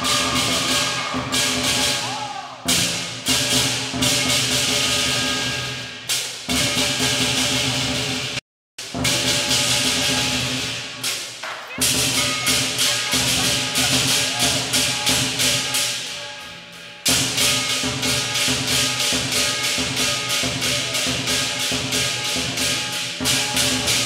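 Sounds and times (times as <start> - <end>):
hand cymbals clashing: 0.0 - 8.1, 8.8 - 24.0
big drum beating: 0.0 - 16.0, 17.1 - 24.0.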